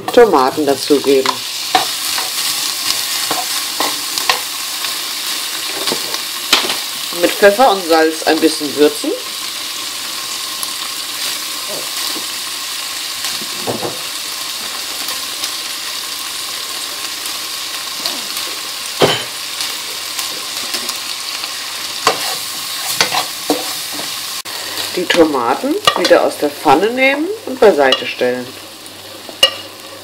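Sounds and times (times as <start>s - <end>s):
spatula stirring pan: 0.0s - 6.7s, 19.7s - 26.8s, 29.3s - 29.8s
tomatoes sizzling in oil: 0.0s - 30.0s.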